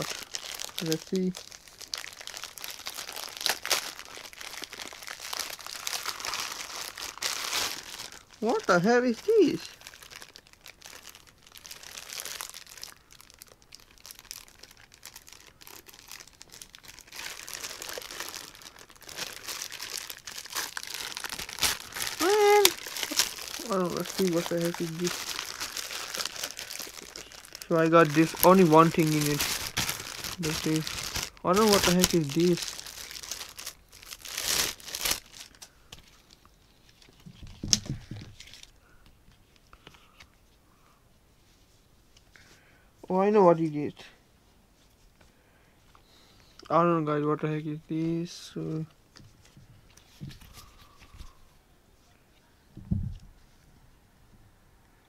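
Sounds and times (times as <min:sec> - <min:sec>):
plastic bag crinkling: 0:00.0 - 0:38.8.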